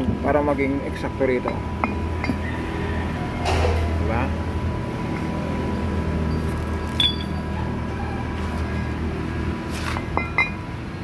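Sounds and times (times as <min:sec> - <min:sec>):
steady low hum: 0:00.0 - 0:11.0
steel pin clinking: 0:06.3 - 0:07.4.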